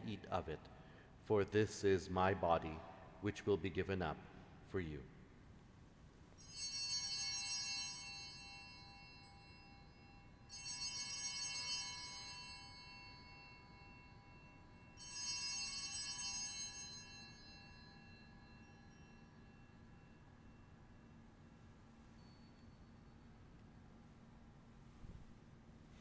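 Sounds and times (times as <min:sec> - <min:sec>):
altar bells ringing: 0:06.4 - 0:23.6.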